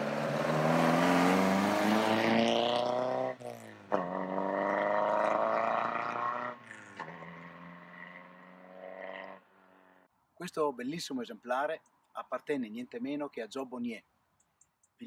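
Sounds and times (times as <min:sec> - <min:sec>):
car engine accelerating hard: 0:00.0 - 0:09.4.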